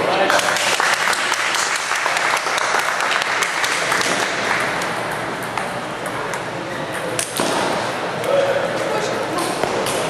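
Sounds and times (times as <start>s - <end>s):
hubbub of busy hall: 0.0s - 10.0s
table tennis balls clicking: 3.0s - 8.4s.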